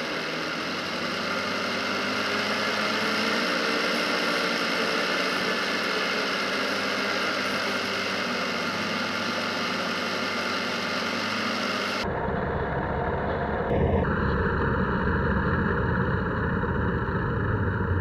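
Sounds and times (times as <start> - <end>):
atv engine running: 0.0 - 18.0.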